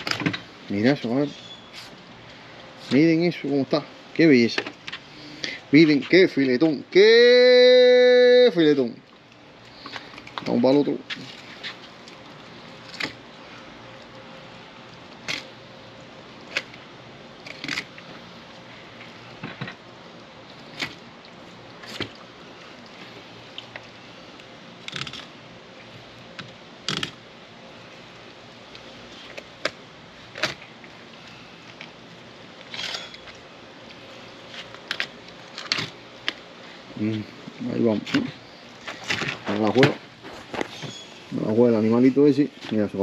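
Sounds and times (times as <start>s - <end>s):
knife crunching and scraping fish: 24.8s - 25.3s.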